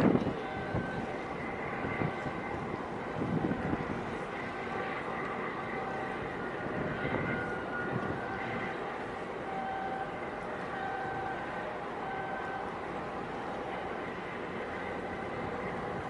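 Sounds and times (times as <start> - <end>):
wind buffeting microphone: 0.0 - 9.4, 13.2 - 16.0
boat engine drone: 0.0 - 16.0.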